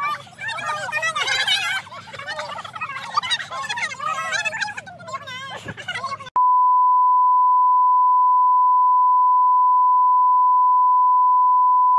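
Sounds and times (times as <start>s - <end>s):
voices: 0.0s - 6.4s
steady test tone beep: 6.4s - 11.9s.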